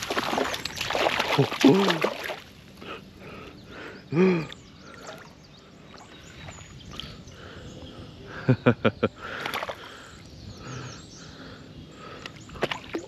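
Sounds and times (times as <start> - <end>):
water splashing and sloshing: 0.0 - 3.4, 9.2 - 10.2, 12.0 - 13.0.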